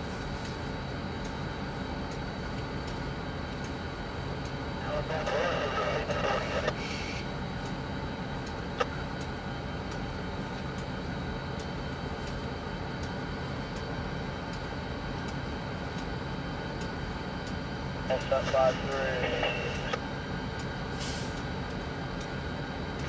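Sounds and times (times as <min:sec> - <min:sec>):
locomotives idling: 0:00.9 - 0:23.0
faint ticks: 0:02.1 - 0:03.8, 0:11.6 - 0:12.4.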